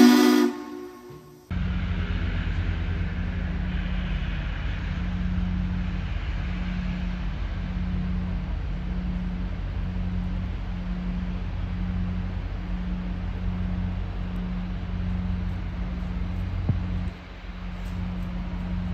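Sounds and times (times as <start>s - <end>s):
diesel locomotive engine throbbing: 0.0s - 18.9s.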